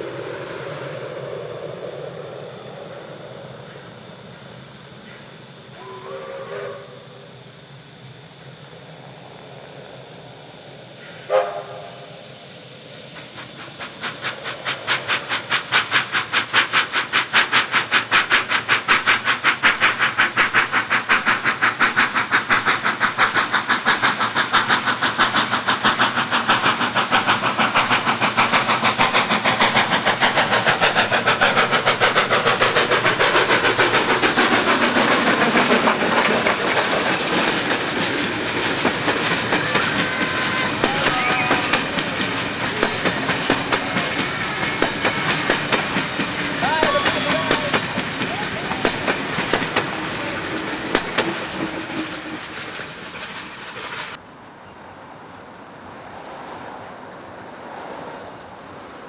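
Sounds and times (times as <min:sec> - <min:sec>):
steam locomotive exhaust beats: 0:00.0 - 0:54.3
steam locomotive whistle: 0:05.7 - 0:07.4, 0:11.2 - 0:12.2, 0:38.8 - 0:50.7.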